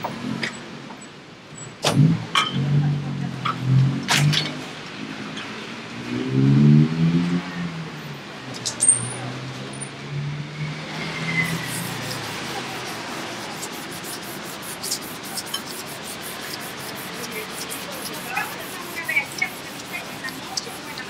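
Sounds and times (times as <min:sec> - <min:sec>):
vehicle engine drone: 0:09.3 - 0:21.0.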